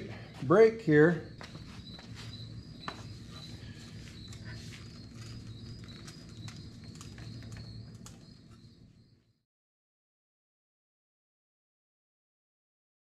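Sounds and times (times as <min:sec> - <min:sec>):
faint high whine: 0:00.0 - 0:09.4.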